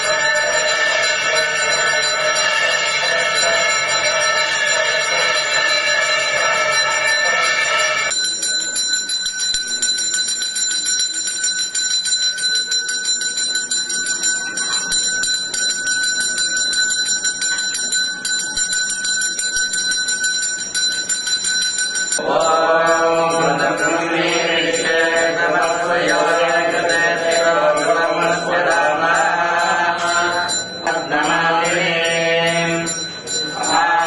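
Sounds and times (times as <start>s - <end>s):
voices chanting: 0.0s - 8.1s, 22.2s - 34.0s
temple bells ringing: 0.0s - 34.0s.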